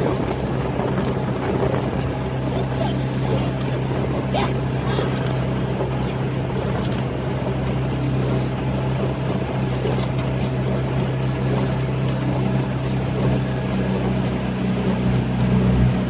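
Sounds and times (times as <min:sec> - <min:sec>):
wind noise: 0:00.0 - 0:07.5
outboard motor droning: 0:00.0 - 0:16.0
water noise: 0:00.0 - 0:16.0.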